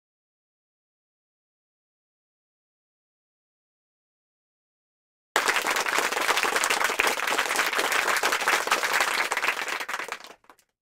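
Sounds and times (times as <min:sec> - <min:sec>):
crowd clapping: 0:05.4 - 0:10.8.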